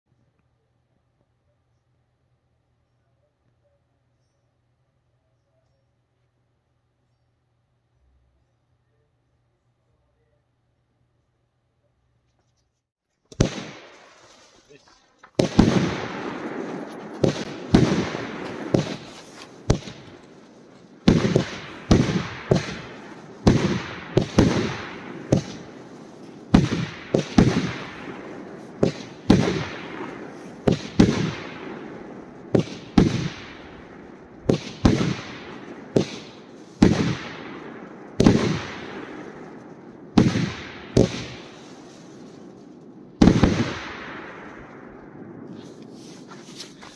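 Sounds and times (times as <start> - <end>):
fireworks cake bangs: 13.2 - 46.9.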